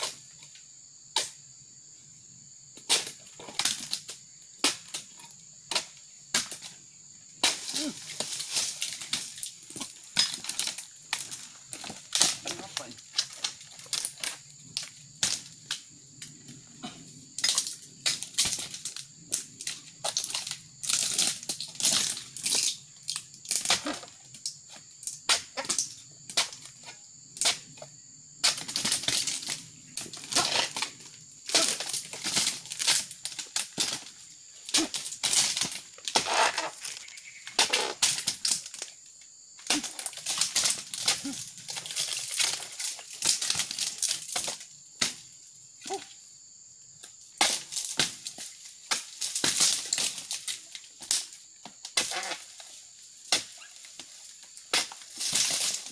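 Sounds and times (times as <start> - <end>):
dry fronds crunching and rustling: 7.6 - 14.5.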